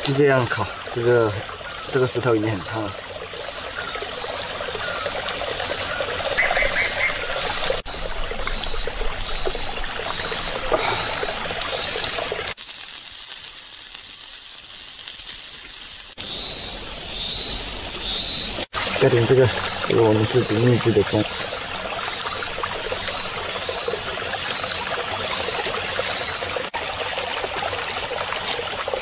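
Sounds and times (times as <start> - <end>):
meat sizzling on hot stone: 10.2 - 19.0
bird chirps: 16.2 - 22.4.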